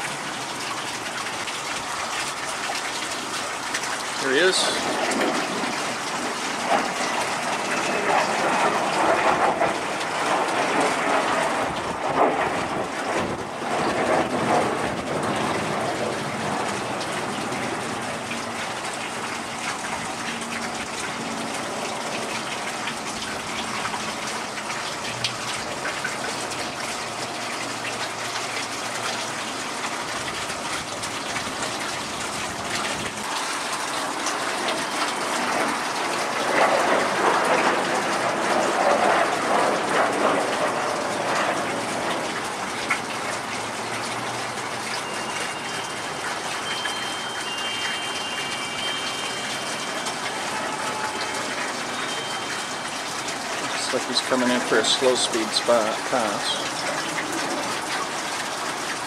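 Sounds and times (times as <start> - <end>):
jet flying overhead: 4.3 - 18.9, 34.1 - 43.5.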